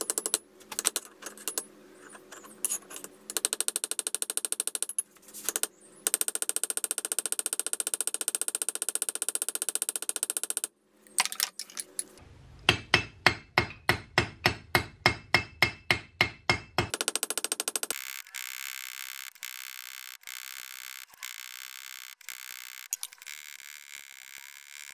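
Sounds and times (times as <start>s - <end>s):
hammer striking metal pin: 12.7s - 17.0s.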